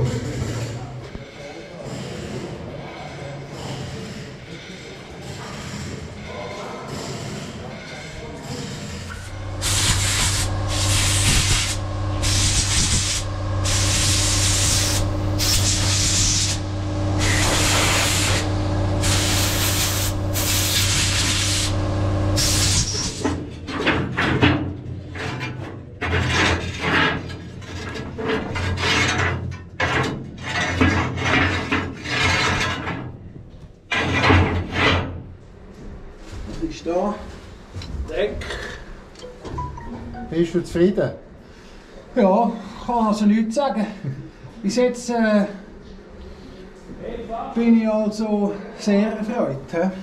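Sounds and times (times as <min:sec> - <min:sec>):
metal scraping: 0:07.3 - 0:24.3
low hum: 0:09.1 - 0:23.2.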